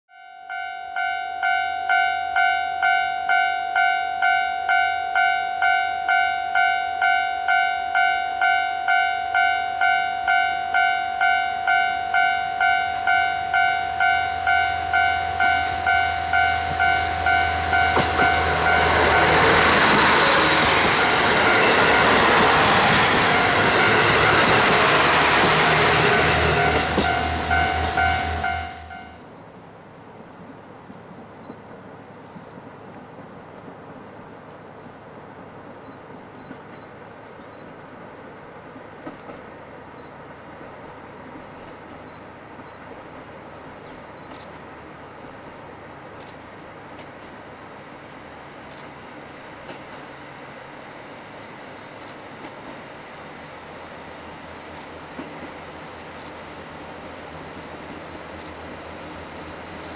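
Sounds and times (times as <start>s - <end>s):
level crossing bell ringing: 0.1s - 18.9s
train passing with rushing noise: 0.5s - 30.4s, 31.0s - 59.9s.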